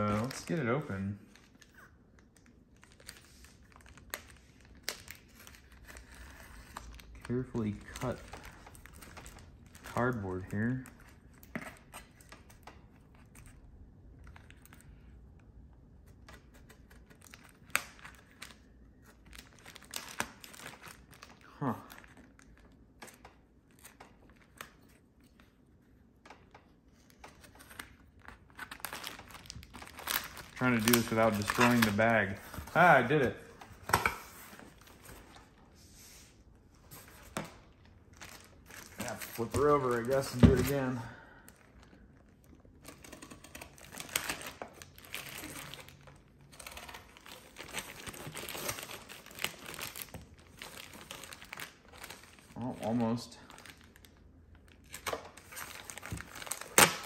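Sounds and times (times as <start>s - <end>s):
plastic bag crinkling: 27.8s - 33.8s, 37.6s - 57.0s.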